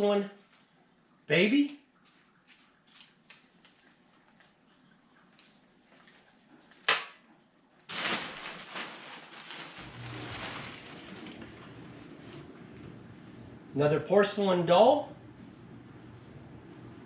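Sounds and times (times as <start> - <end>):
plastic bag rustling: 7.9 - 12.5.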